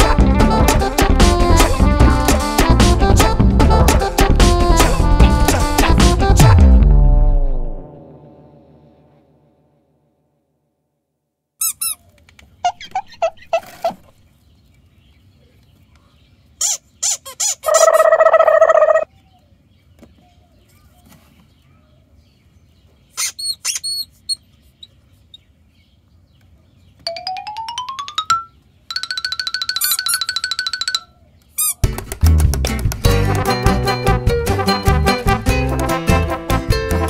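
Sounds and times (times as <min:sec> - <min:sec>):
squeaky toy squeaks: 0:11.6 - 0:14.1, 0:16.6 - 0:19.0, 0:23.2 - 0:24.4, 0:29.6 - 0:31.8.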